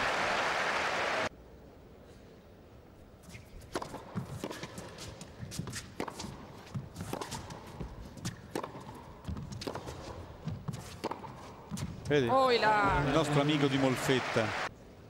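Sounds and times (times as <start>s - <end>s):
tennis ball bouncing: 3.6s - 12.1s
racket striking ball: 3.7s - 12.0s.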